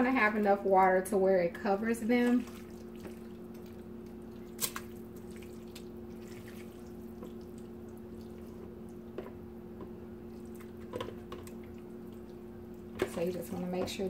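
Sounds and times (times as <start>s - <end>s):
steady low hum: 0.0s - 14.0s
faint drips and wet plops: 2.1s - 9.4s, 10.3s - 14.0s.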